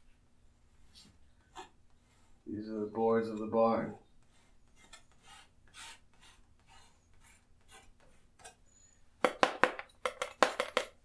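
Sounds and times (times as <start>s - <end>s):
palette knife scraping paint: 3.2s - 8.8s.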